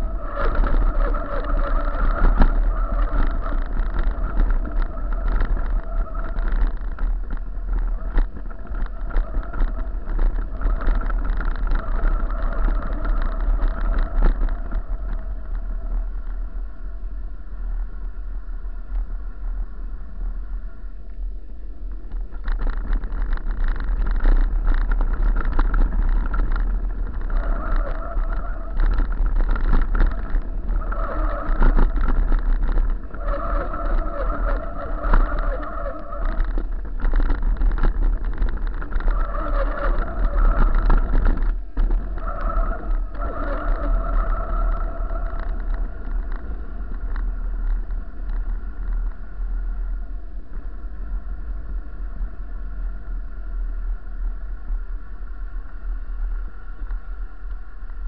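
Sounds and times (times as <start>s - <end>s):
bicycle brakes squealing: 0.0s - 16.0s, 25.8s - 47.9s
bike rattling: 0.0s - 58.0s
wind rumble on microphone: 0.0s - 58.0s.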